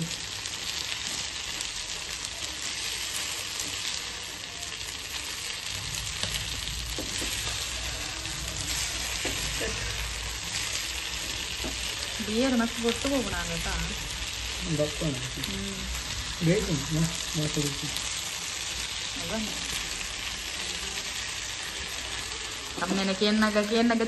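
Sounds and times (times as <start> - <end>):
food sizzling in oil: 0.0 - 24.0
low rumble: 5.5 - 11.6, 12.2 - 20.0.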